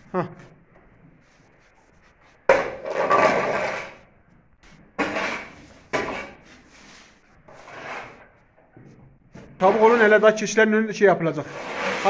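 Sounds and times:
scraper dragged on wet concrete: 2.8s - 4.1s, 5.0s - 8.4s, 9.6s - 10.6s, 11.3s - 12.0s.

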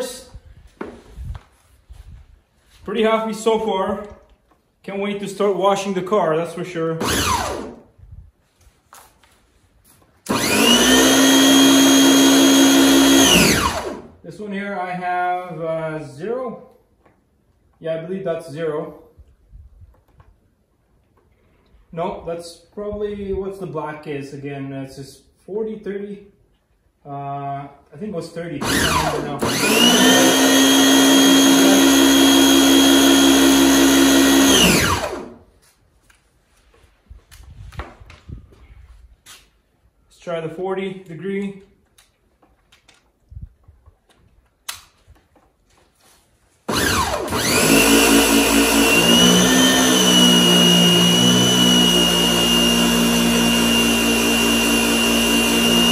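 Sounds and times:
pressure washer motor whine: 7.0s - 7.8s, 10.3s - 14.1s, 28.6s - 35.4s, 46.7s - 55.9s.

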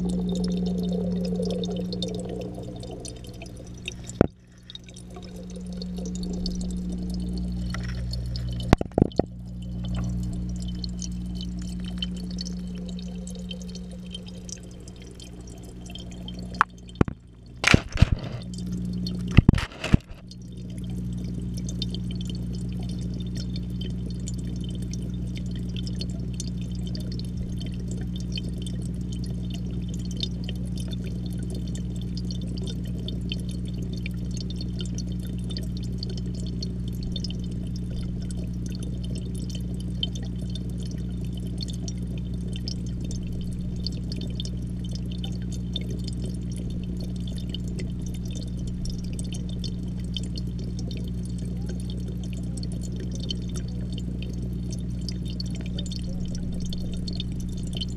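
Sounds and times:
aquarium pump humming underwater: 0.0s - 57.9s
faint bubbling: 0.0s - 57.9s.

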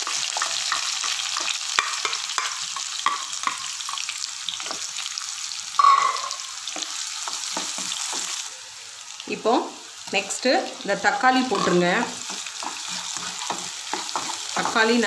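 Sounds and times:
spoon scraping a pan: 0.0s - 4.9s, 5.8s - 8.5s, 11.2s - 15.0s
onions sizzling in hot oil: 0.0s - 15.0s.

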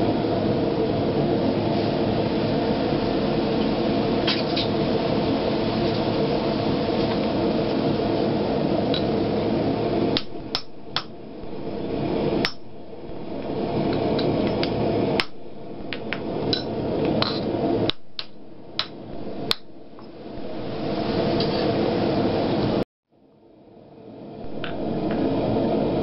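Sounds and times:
steady hum: 0.0s - 26.0s
hammer striking metal: 10.2s - 11.2s, 12.4s - 12.7s, 14.2s - 20.1s.

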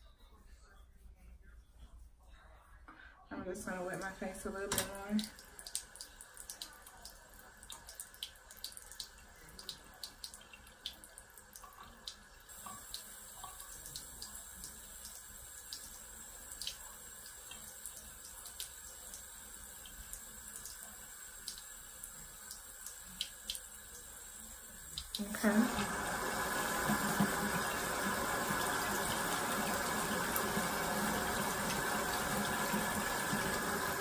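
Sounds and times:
running water from sink tap: 3.6s - 34.0s
wet clicks and squelches of hands: 5.2s - 12.2s.

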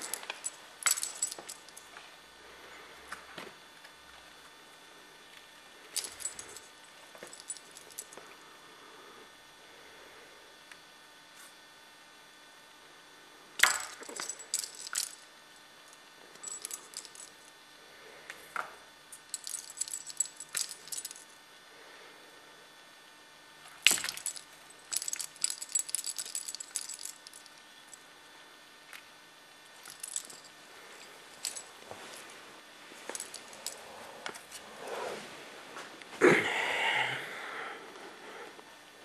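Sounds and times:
toy metal rings jangling: 0.0s - 1.8s, 6.0s - 8.2s, 13.6s - 15.3s, 16.4s - 17.4s, 19.1s - 21.3s, 23.9s - 27.6s, 29.8s - 32.3s, 33.1s - 34.6s.

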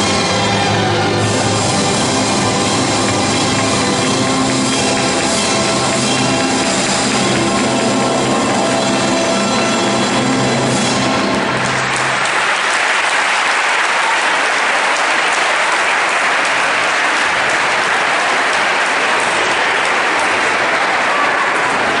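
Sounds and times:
music: 0.0s - 13.4s
audience applauding: 0.0s - 22.0s.

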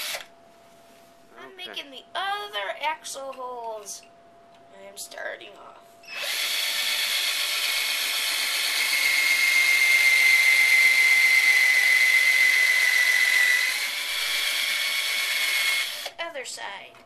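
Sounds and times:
power drill whining: 0.0s - 0.3s, 6.1s - 16.1s.

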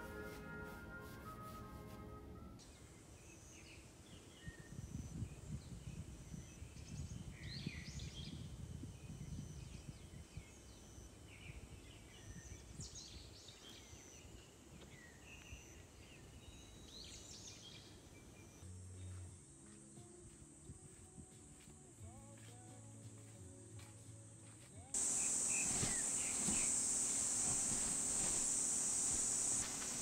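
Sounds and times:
birds calling: 25.0s - 30.0s.

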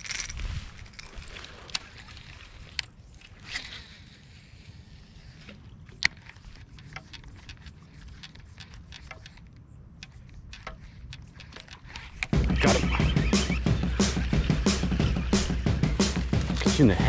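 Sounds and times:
fishing reel ticking: 0.0s - 17.0s
fishing reel clicking: 5.9s - 12.4s.

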